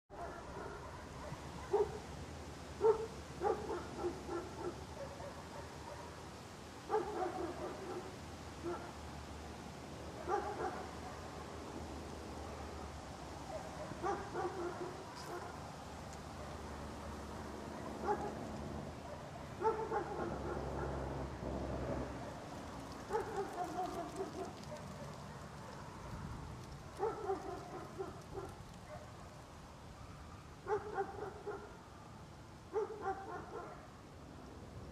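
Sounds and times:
dry leaves crackling underfoot: 22.3s - 30.0s.

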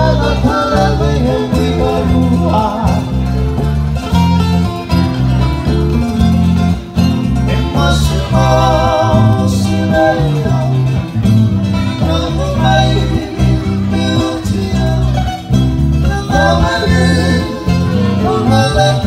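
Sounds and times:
men singing together: 0.0s - 3.3s, 7.4s - 11.2s, 11.8s - 19.0s
electric bass line: 0.0s - 19.0s
strummed ukulele and guitar: 0.0s - 19.0s.

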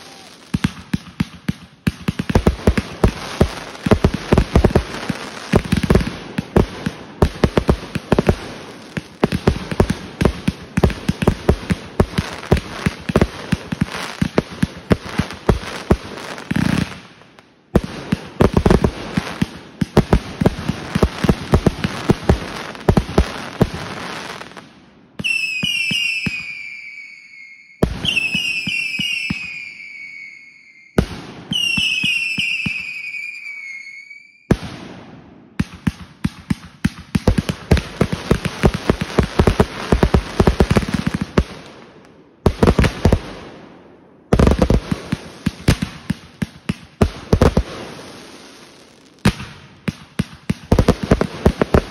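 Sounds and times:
shrill falling firework whistles: 0.0s - 0.7s, 25.2s - 34.6s
fireworks crackling and popping: 0.0s - 27.2s, 27.8s - 43.7s, 44.3s - 51.9s.

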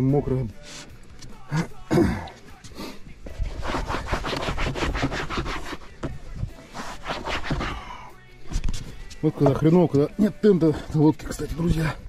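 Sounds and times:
rapid rubbing strokes: 3.3s - 8.0s.

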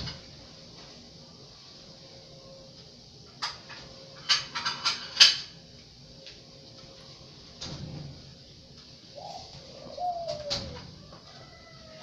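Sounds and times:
bird calling: 9.1s - 12.0s.

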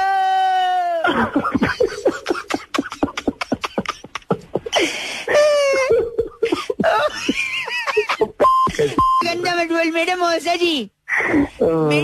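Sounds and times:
man laughing hard: 1.0s - 8.9s.

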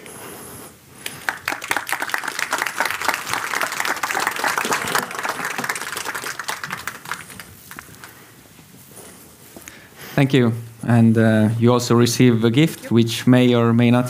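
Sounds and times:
audience applauding: 1.0s - 8.2s.

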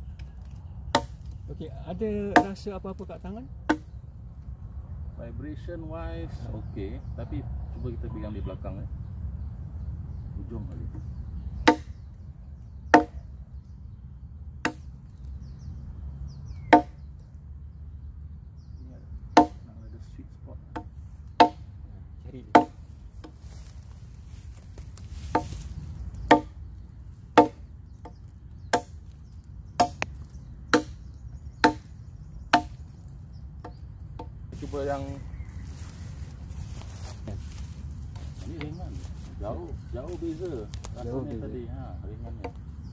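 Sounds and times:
machete chopping into log: 11.7s - 11.9s, 12.9s - 13.2s, 16.7s - 17.0s, 19.4s - 19.6s, 27.4s - 27.6s, 32.5s - 32.7s.

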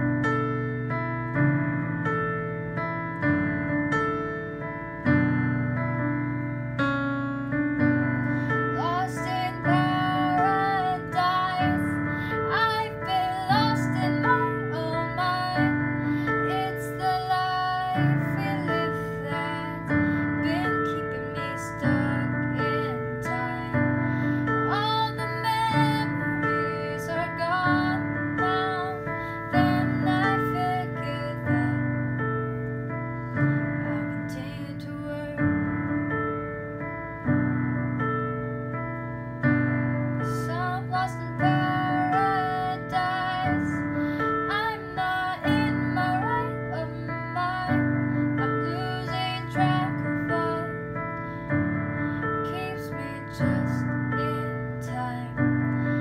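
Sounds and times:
digital piano chords: 0.0s - 56.0s
girl singing: 8.0s - 32.3s, 33.7s - 35.8s, 40.2s - 56.0s.

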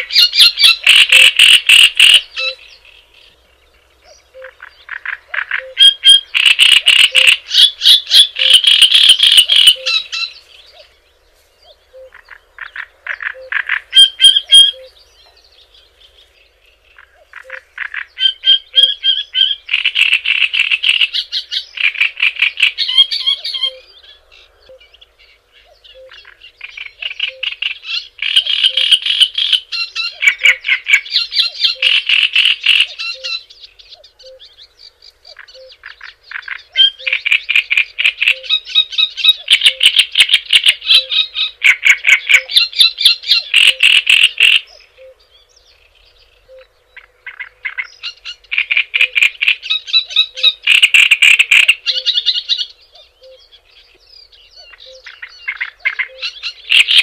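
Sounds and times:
songbird chattering song: 0.0s - 57.0s.

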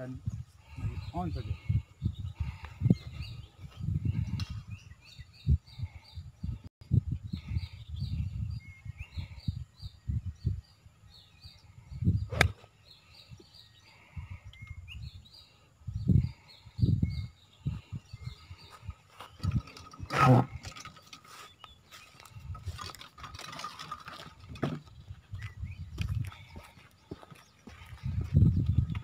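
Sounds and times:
birds chirping: 0.0s - 29.0s
wind buffeting microphone: 0.0s - 29.0s
golf club striking ball: 12.3s - 12.6s.

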